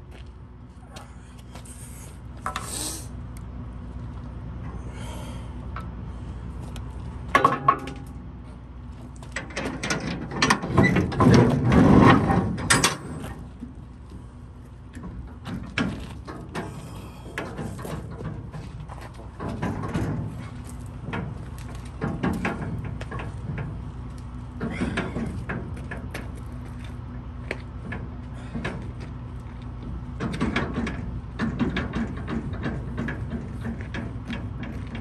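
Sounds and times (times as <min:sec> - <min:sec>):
steady low hum: 0:00.0 - 0:35.0
metal latches clanking and rattling: 0:09.3 - 0:13.4, 0:30.2 - 0:35.0.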